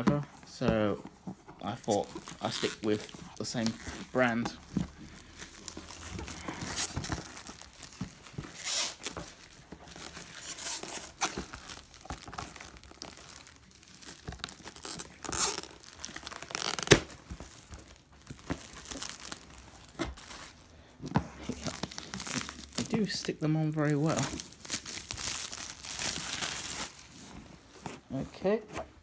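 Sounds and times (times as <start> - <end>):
plastic shrink wrap crinkling: 0.5 - 29.0
plastic wrap sharp snap: 16.4 - 17.3.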